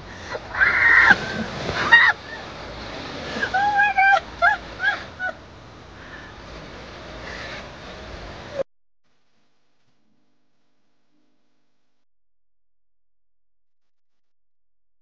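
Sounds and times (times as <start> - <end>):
water splashing and churning: 0.1 - 5.5.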